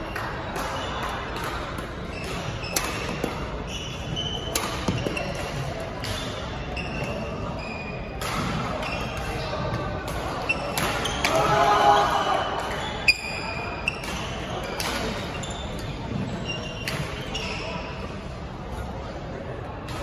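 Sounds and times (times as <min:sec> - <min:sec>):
racket hitting shuttlecock: 0:01.4 - 0:03.6, 0:04.4 - 0:06.4, 0:08.2 - 0:09.4.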